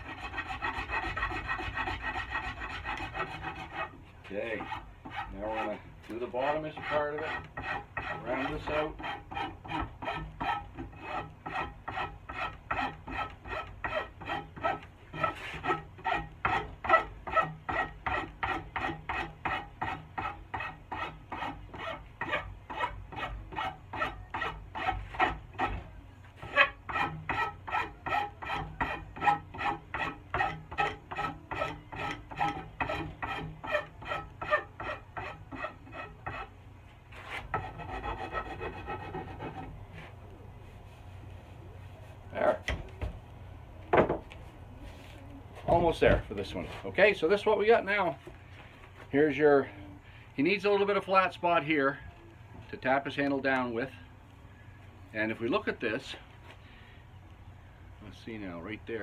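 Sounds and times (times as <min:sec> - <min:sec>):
rasp cutting wood: 0:00.0 - 0:25.8, 0:26.4 - 0:39.8.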